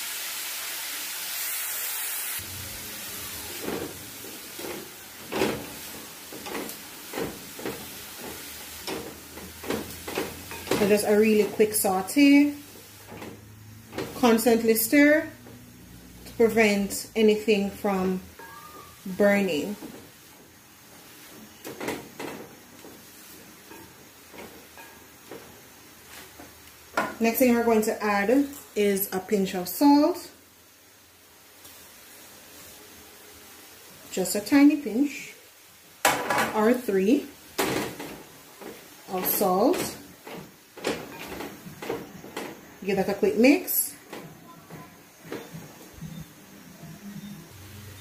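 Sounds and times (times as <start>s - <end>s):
vegetables sizzling in pot: 0.0s - 48.0s
tongs scraping and knocking pot: 3.6s - 15.6s, 21.0s - 27.9s, 37.6s - 46.3s.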